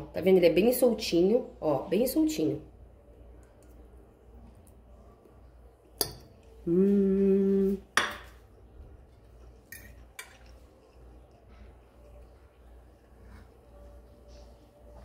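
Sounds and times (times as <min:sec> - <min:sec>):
person humming mmm: 0:06.6 - 0:08.0
fork clinking on ceramic plate: 0:09.7 - 0:10.5.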